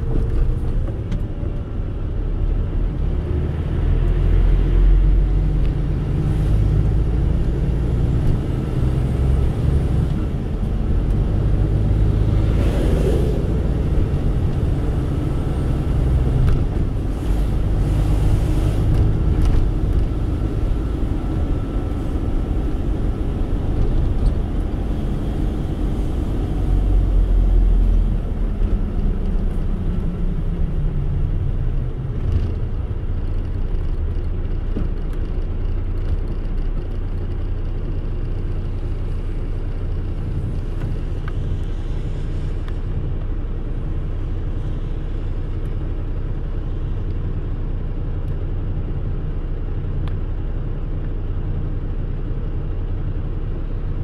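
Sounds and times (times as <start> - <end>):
car cabin engine and tyre rumble: 0.0 - 54.0
vehicles whooshing past: 3.6 - 31.4.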